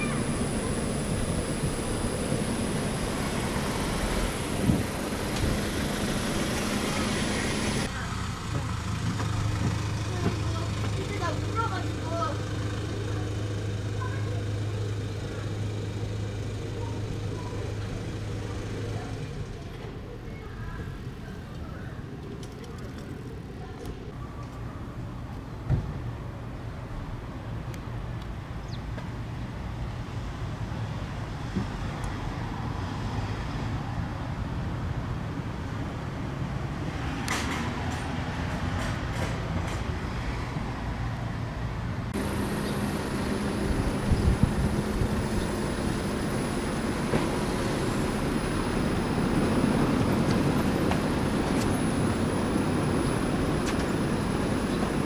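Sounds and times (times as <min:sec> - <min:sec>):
high whine: 0:00.0 - 0:07.9, 0:42.2 - 0:55.0
low machine hum: 0:00.0 - 0:07.9, 0:42.2 - 0:55.0
low mechanical rumble: 0:00.0 - 0:28.7, 0:42.0 - 0:55.0.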